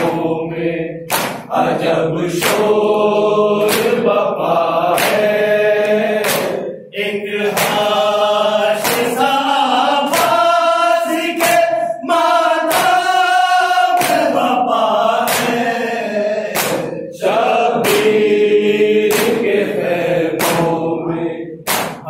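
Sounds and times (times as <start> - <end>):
men chanting in unison: 0.0 - 22.0.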